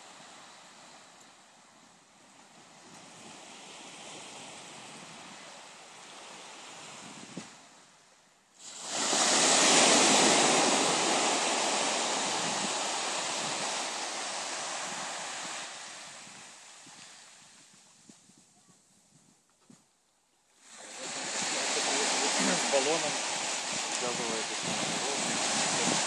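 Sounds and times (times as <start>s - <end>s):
waves washing up beach: 0.0s - 17.9s, 20.6s - 26.0s.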